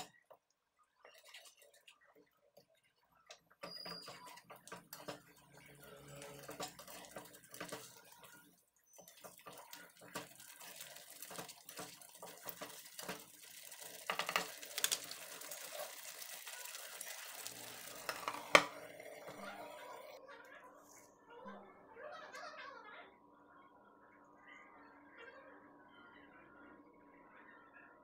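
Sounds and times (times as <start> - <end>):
spatula scraping a metal pan: 3.6 - 8.3.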